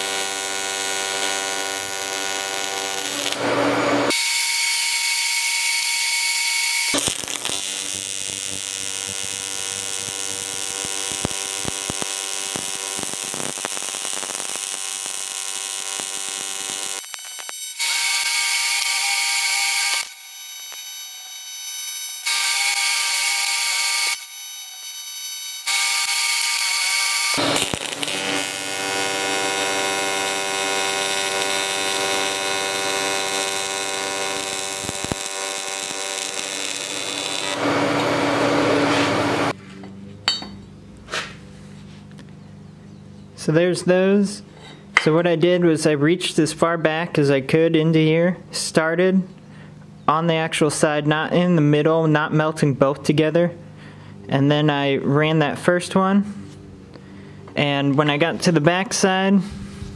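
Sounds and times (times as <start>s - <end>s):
welding arc buzzing and hissing: 0.0s - 39.6s.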